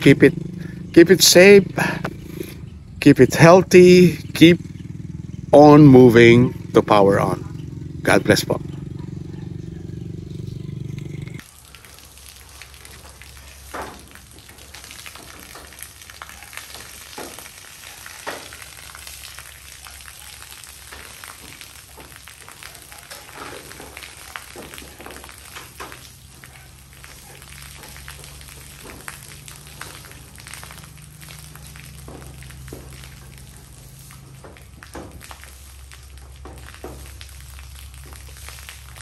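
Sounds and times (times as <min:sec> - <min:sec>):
scraping metal roof: 0:13.6 - 0:37.3.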